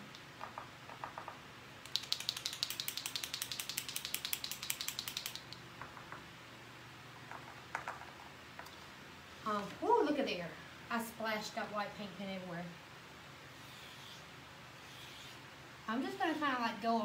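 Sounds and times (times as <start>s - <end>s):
paint pen ball rattling: 0.4s - 6.1s.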